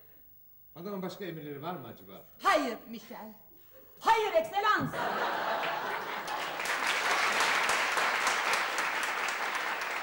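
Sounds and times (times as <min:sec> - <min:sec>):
audience applauding: 0:05.0 - 0:10.0.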